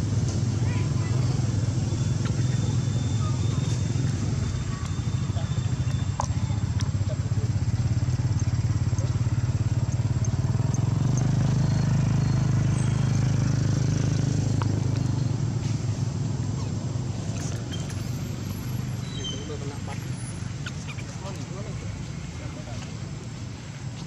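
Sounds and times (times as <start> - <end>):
motor engine running: 0.0 - 16.3.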